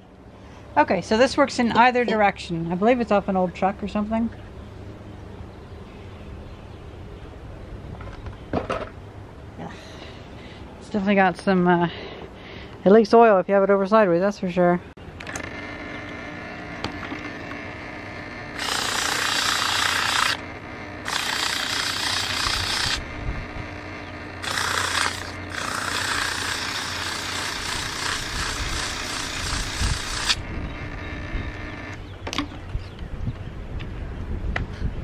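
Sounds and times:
steady low hum: 0.0 - 35.0
rough scraping of steel shaft: 15.3 - 32.0.

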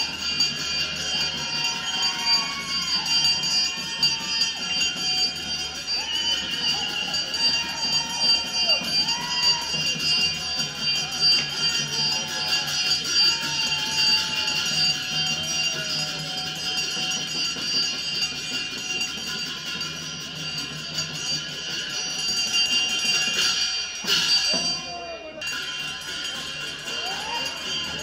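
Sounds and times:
folk dance music: 0.0 - 22.0
jingling bells: 0.0 - 28.0.

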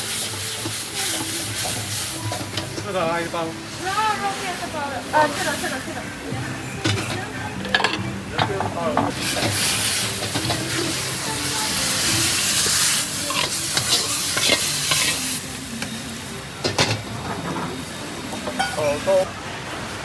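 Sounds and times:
food sizzling in a wok: 0.0 - 20.0
metal spatula scraping a wok: 12.2 - 15.4
spatula clanking against wok: 13.2 - 15.2.

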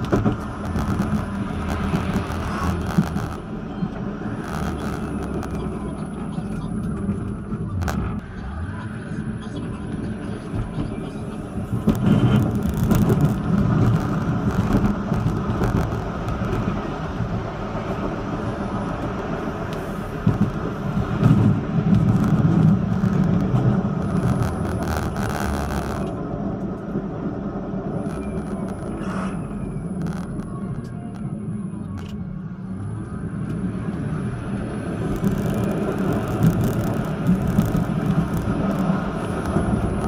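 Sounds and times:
tram wheels rumbling on rail: 0.0 - 40.0.

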